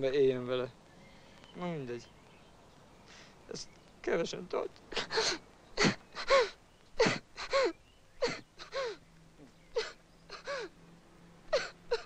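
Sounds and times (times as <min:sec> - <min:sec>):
man sobbing: 0:04.9 - 0:09.0, 0:09.7 - 0:10.8.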